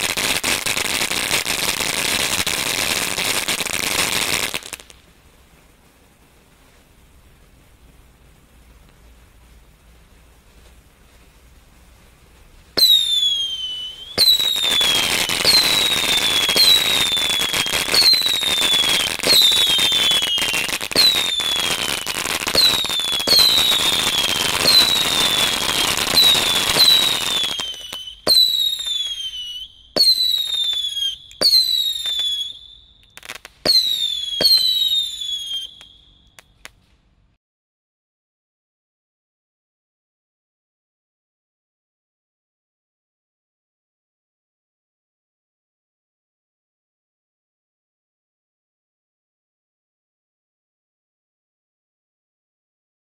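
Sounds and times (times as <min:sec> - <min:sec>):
firework crackling hiss: 0:00.0 - 0:36.8
firework whistles falling in pitch: 0:12.8 - 0:36.5.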